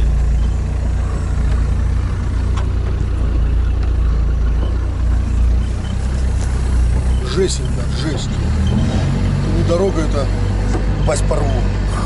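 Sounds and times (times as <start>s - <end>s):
diesel engine droning: 0.0s - 12.0s.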